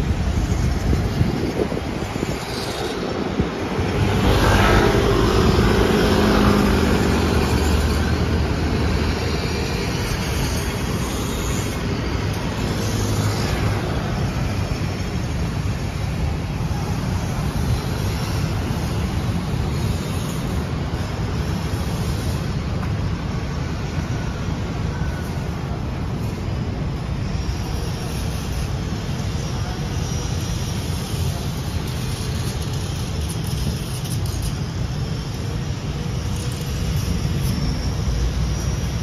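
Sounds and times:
road vehicles humming: 0.0 - 39.0
vehicle passing: 3.7 - 9.8.

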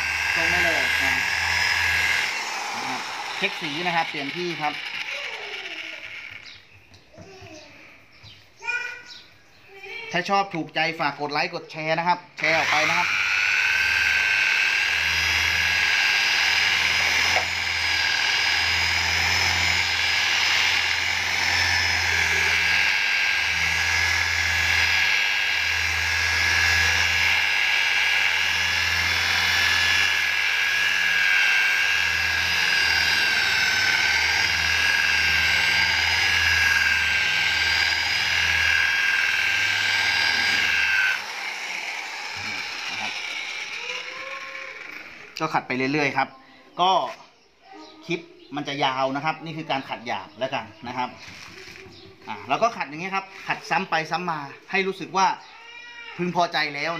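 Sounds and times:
electric polisher whine and hum: 0.0 - 6.7, 12.4 - 46.2.

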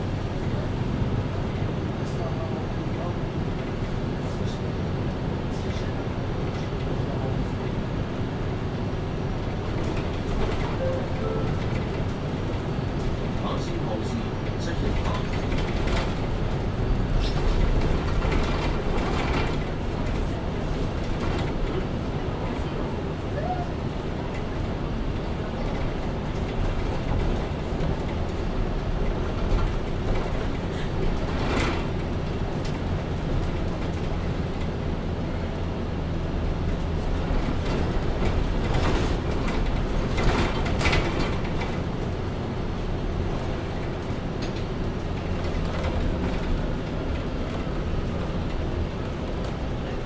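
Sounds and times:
bus engine and road drone: 0.0 - 50.0.

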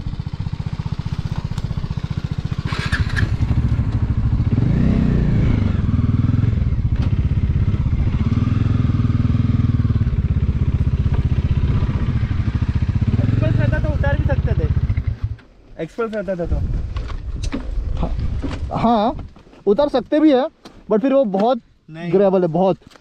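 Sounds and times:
motorcycle engine running: 0.0 - 15.5.

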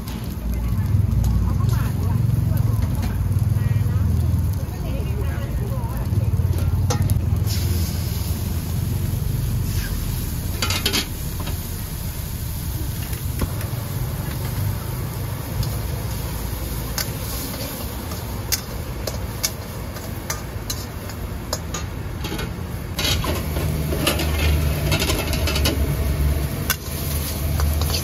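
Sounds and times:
gas burner rumble: 0.0 - 28.0
metal spatula scraping a wok: 9.0 - 11.7, 15.6 - 28.0.

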